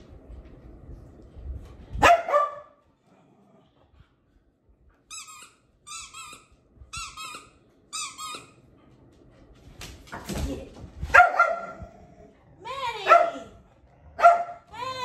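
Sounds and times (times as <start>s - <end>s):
squeaky dog toy squeaking: 5.1s - 8.6s.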